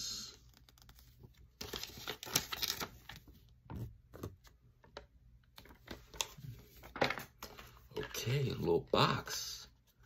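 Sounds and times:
paper leaflet crackling and rustling: 0:00.4 - 0:03.4.

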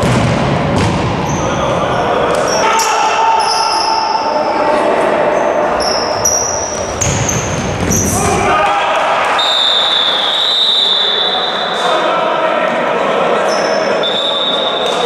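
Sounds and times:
players calling out: 0:01.0 - 0:12.4
shoes squeaking: 0:05.3 - 0:08.5.

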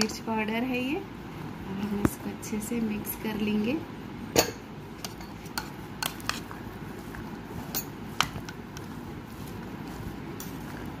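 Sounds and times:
spoon mixing in plastic bowl: 0:05.0 - 0:11.0.

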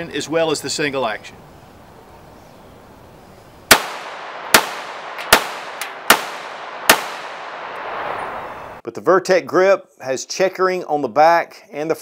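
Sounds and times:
pistol shots with echo: 0:03.7 - 0:08.5.

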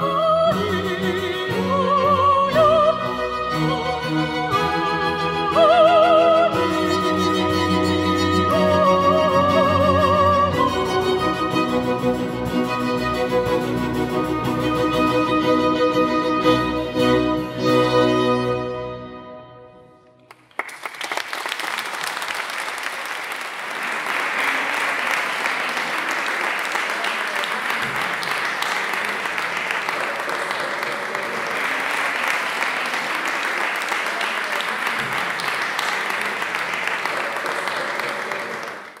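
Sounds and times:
audience applause: 0:20.2 - 0:39.0.

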